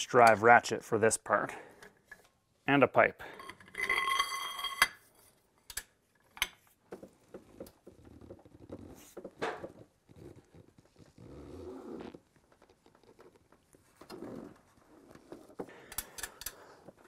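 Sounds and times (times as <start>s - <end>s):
ratchet clicks and creaks: 15.9s - 17.0s.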